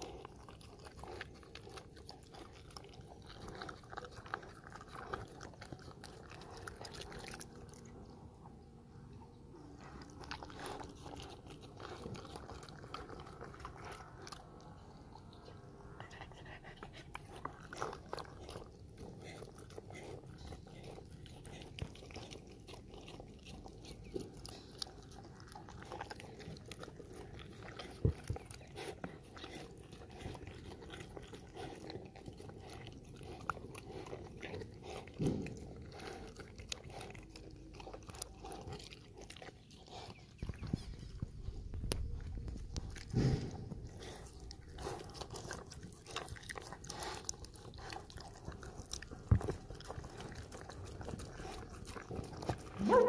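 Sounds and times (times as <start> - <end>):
dog chewing: 0.0 - 53.0
wet mouth clicks: 40.2 - 48.4.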